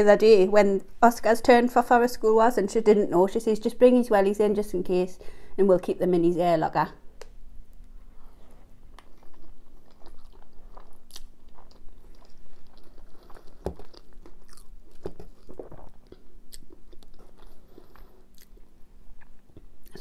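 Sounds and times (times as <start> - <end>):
wet chewing and mouth smacks: 8.9 - 20.0.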